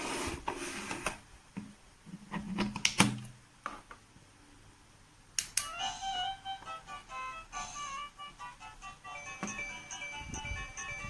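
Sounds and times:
doorbell electronic chime melody: 9.0 - 11.0.

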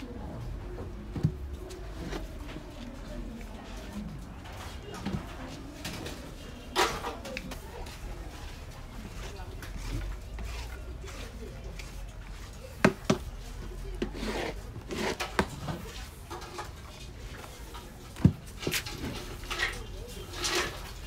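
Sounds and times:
paddle scraping through dough: 9.1 - 16.7, 18.5 - 21.0.

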